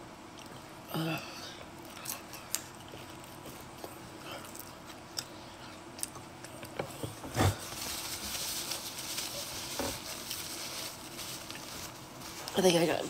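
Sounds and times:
paper towel rustling: 0:07.3 - 0:13.0.

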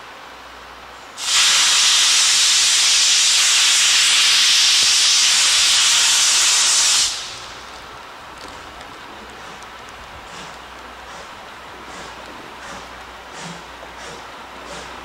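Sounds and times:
steam locomotive loud hiss: 0:01.1 - 0:07.9, 0:10.2 - 0:15.0.

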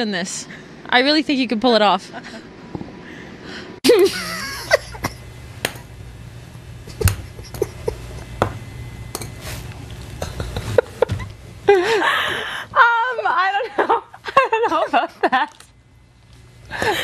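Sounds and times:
low steady hum: 0:00.0 - 0:17.0
people laughing: 0:03.9 - 0:05.2, 0:06.8 - 0:08.3, 0:10.2 - 0:15.6.

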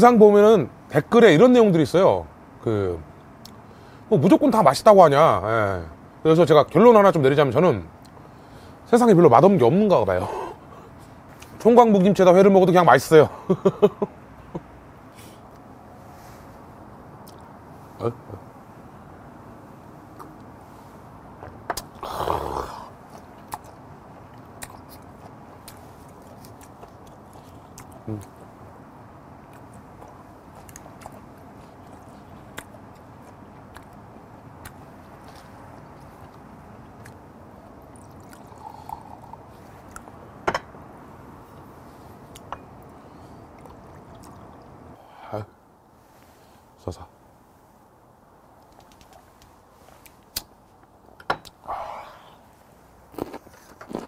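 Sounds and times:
chewing: 0:23.1 - 0:28.5, 0:29.5 - 0:34.0, 0:37.8 - 0:40.1, 0:42.3 - 0:44.8, 0:53.1 - 0:54.0
liquor pouring into a glass: 0:38.0 - 0:39.4
loud breathy exhale: 0:51.6 - 0:52.4.

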